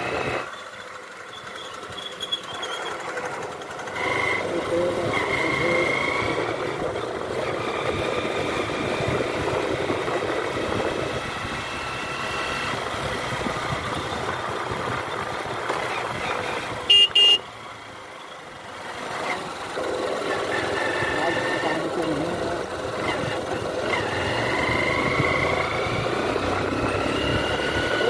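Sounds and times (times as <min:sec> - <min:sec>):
motorcycle engine: 0:00.0 - 0:28.0
wind and road noise: 0:00.0 - 0:28.0
horn toots: 0:16.8 - 0:17.5.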